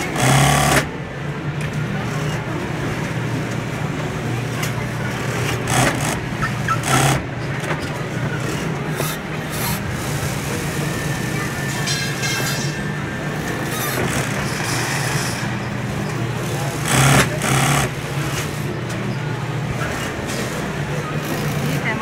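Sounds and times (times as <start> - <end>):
sewing machine motor humming: 0.0 - 0.9, 4.8 - 7.3, 13.1 - 18.7
short bursts of noise: 16.7 - 18.6.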